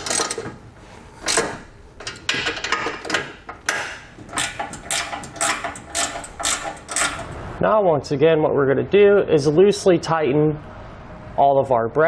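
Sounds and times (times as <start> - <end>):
socket ratchet clicking: 1.2 - 7.4.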